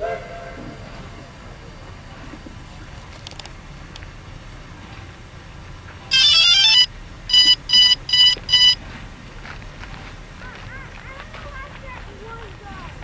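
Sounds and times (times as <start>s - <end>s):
rising electronic tones: 6.1s - 8.8s
short electronic beeps: 6.1s - 8.8s.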